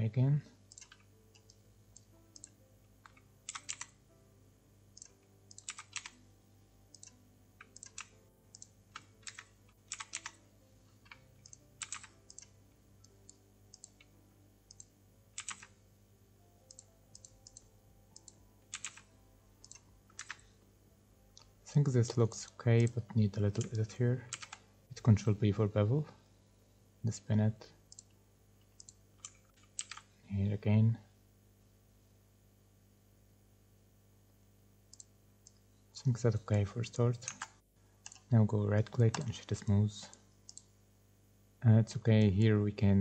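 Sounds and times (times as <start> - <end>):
computer keyboard keystrokes: 0.7 - 3.9, 5.0 - 6.2, 6.9 - 10.4, 11.0 - 12.5, 13.2 - 14.1, 14.7 - 15.8, 16.7 - 20.4, 24.3 - 24.6, 28.8 - 30.1.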